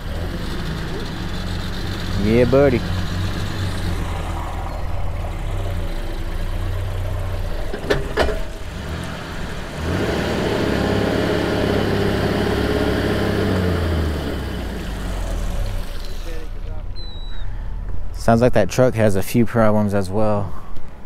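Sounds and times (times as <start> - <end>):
pickup truck engine under load: 0.0 - 18.2
sharp knocks: 7.7 - 8.6.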